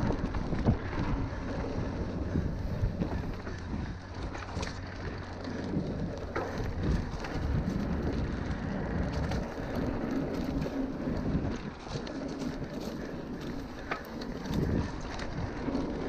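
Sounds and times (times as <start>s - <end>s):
dirt bike riding: 0.0s - 16.0s.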